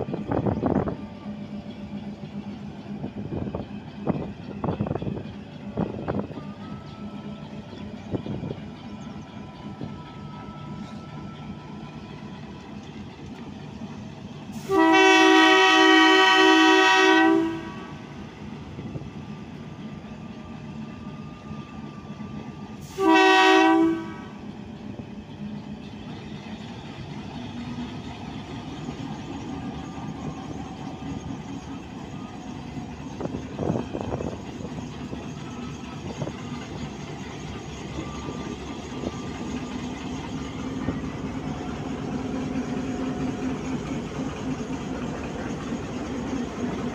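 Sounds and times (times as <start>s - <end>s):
locomotive horn blasts: 14.6s - 18.1s, 22.8s - 24.4s.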